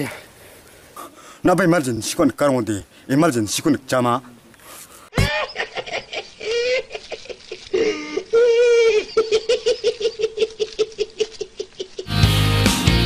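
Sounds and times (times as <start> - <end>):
man laughing hard: 5.1 - 12.2.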